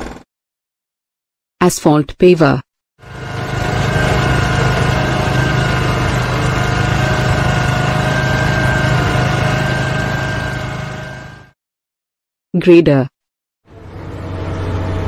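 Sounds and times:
heavy machine engine running: 3.0 - 11.6, 13.7 - 15.0.

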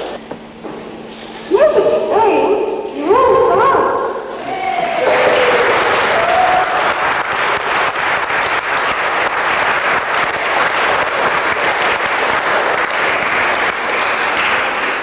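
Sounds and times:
crowd applauding: 4.4 - 15.0.

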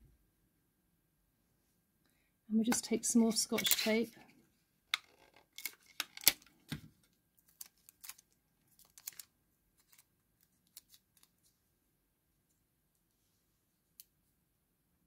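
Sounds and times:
small crackles and clicks: 7.4 - 11.4.

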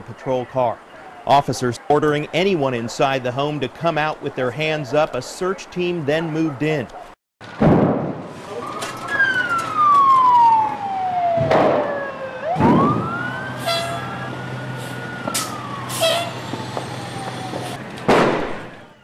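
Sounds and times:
fire engine siren: 8.3 - 19.0
loud bangs: 11.3 - 13.3, 16.4 - 18.9.

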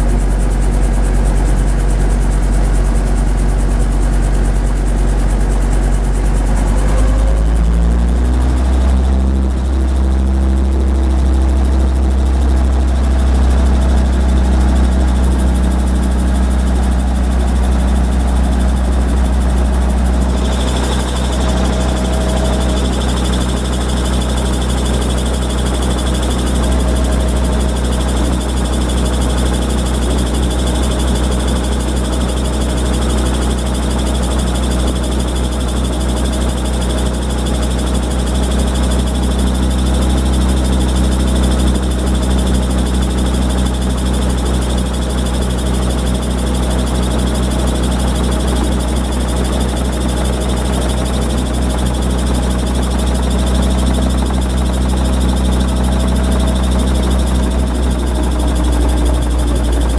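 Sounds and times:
helicopter engine and rotor drone: 0.0 - 59.9
high whine and hiss: 19.0 - 30.3.

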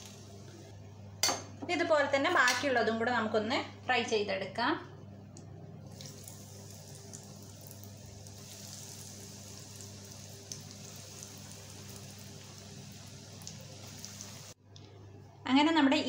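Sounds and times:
cutlets sizzling in hot oil: 0.0 - 0.4, 5.8 - 14.6.

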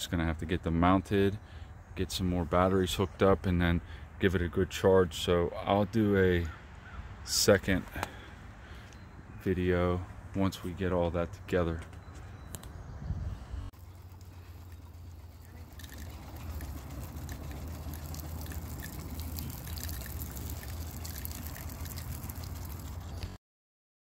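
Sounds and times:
low hum: 12.0 - 23.4
water spraying from hose nozzle: 13.8 - 23.4.

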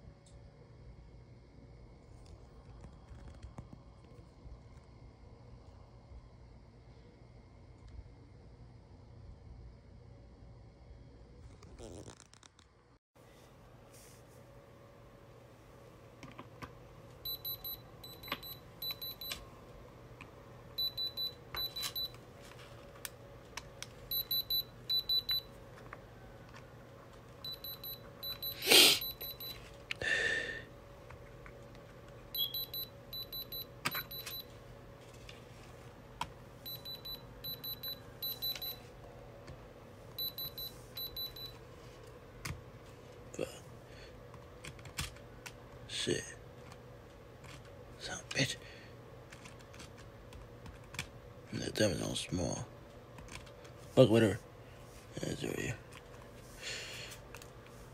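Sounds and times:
high-pitched tester beeps: 17.2 - 19.4, 20.8 - 22.2, 24.1 - 25.5, 27.4 - 29.6, 32.3 - 34.5, 36.6 - 38.8, 40.2 - 41.6.

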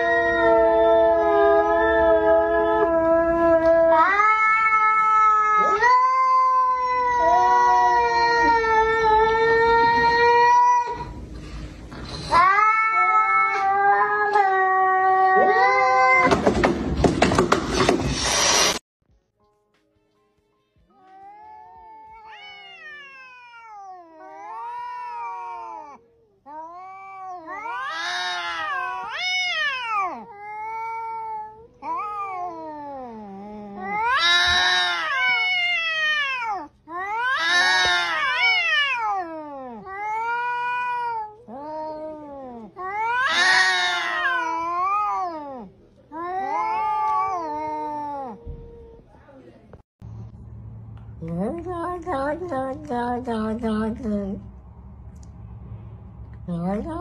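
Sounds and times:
cats yowling: 0.0 - 11.2, 12.1 - 16.4, 21.0 - 49.0.

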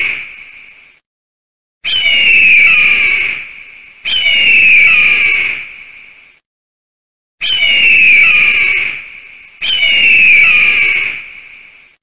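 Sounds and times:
eagle screaming: 1.8 - 5.7, 7.4 - 11.3.

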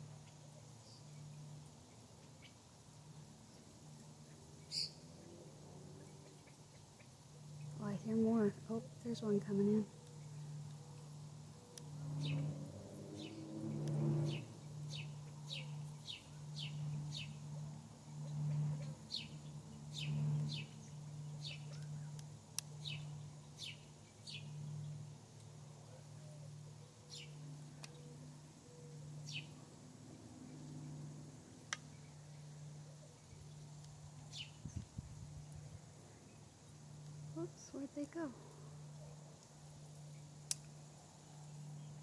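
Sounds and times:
steady low hum: 0.0 - 42.0
birds chirping: 3.5 - 5.3, 6.0 - 25.2, 25.8 - 29.6.

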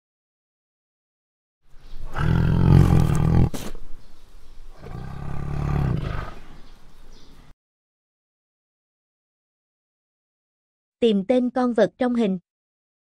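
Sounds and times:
tiger roaring: 2.0 - 3.8, 4.7 - 6.7.

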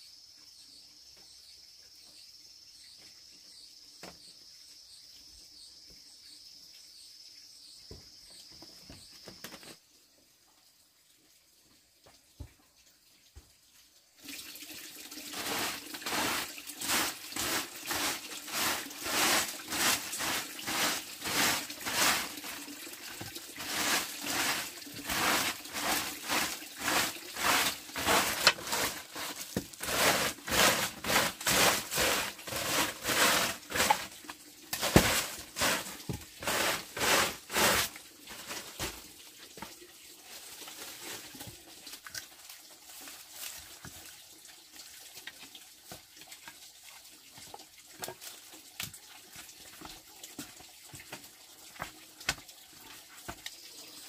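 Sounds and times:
broom sweeping earth floor: 15.2 - 39.1, 40.2 - 41.6
rustling of straw and wood: 15.2 - 43.9.

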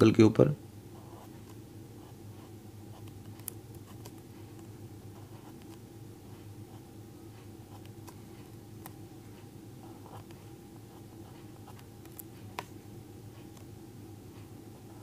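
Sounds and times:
steady low hum: 0.0 - 15.0
pen scratching on paper: 1.0 - 5.8, 9.8 - 12.3.

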